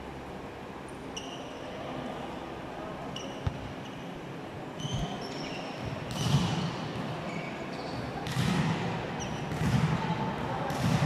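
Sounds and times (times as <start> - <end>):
volleyball hitting hard: 8.2 - 11.0.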